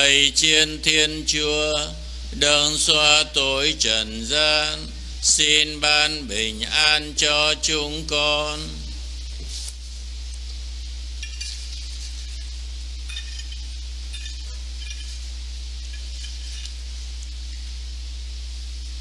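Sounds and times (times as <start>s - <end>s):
electrical hum and hiss: 0.0s - 19.0s
faint clinks of altar vessels: 13.1s - 15.2s.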